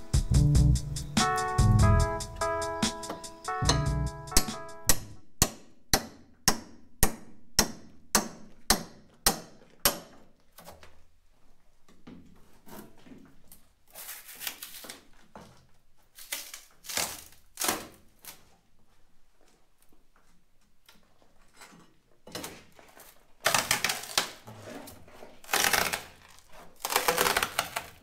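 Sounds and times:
scraping and ripping fiberglass: 13.9 - 15.3, 16.0 - 18.6, 22.5 - 28.0.

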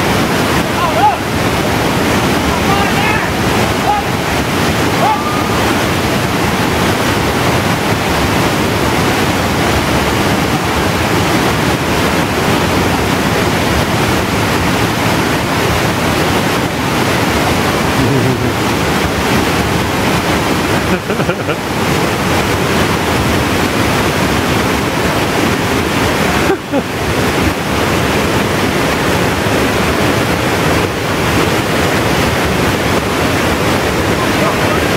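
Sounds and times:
fast churning river: 0.0 - 34.9
waterfall cascading: 0.0 - 34.9.

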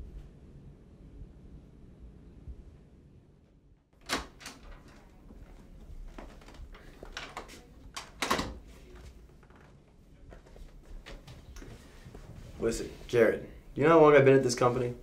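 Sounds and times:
door latch clicks: 4.0 - 5.1, 7.2 - 8.6
wooden door thud: 4.0 - 5.1, 6.2 - 8.7
door knocks and rattles: 4.0 - 5.2, 6.3 - 8.6.

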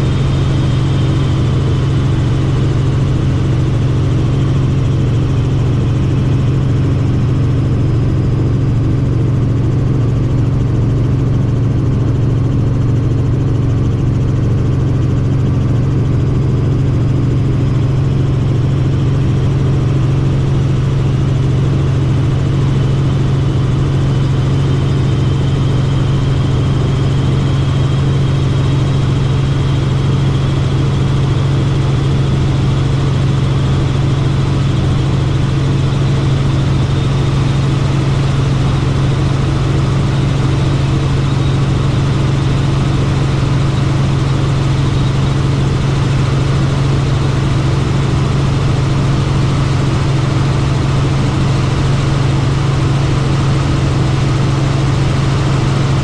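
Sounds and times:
helicopter engine and rotors droning: 0.0 - 56.0
faint high whine: 14.3 - 56.0.

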